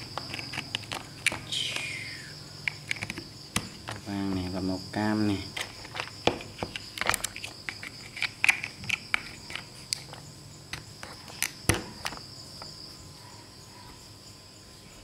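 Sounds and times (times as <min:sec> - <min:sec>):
plastic toy blocks clicking: 0:00.0 - 0:01.9, 0:05.5 - 0:12.2.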